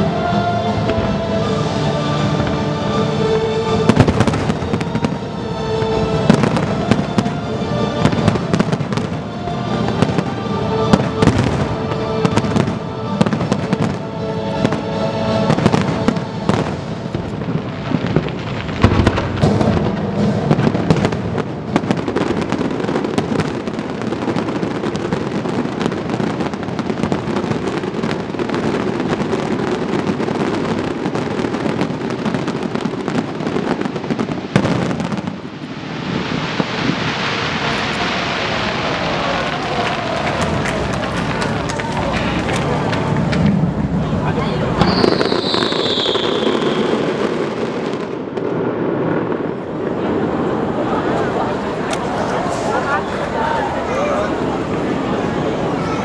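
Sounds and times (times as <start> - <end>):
music: 0.0 - 34.2, 37.4 - 45.8
fireworks bursting: 0.0 - 56.0
fireworks crackle: 0.0 - 56.0.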